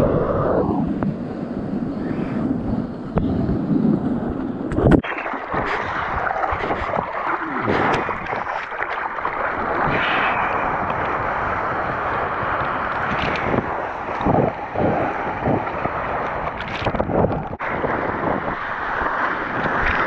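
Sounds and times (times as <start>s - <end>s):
wind buffeting microphone: 0.0s - 20.0s
whitewater rushing and splashing: 4.9s - 20.0s.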